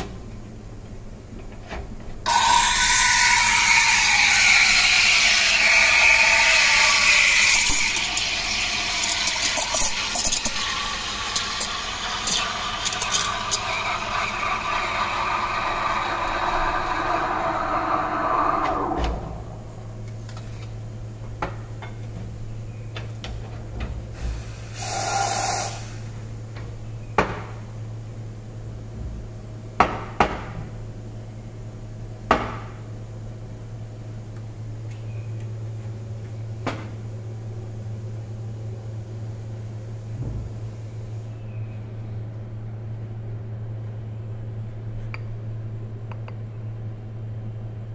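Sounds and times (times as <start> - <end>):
steady low hum: 0.0 - 29.8
steam wand hissing: 2.3 - 18.8, 24.2 - 26.1.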